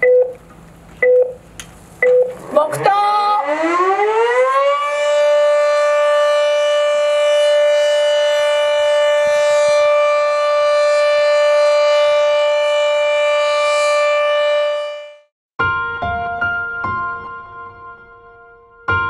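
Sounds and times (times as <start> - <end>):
siren steady tone: 2.0 - 15.3.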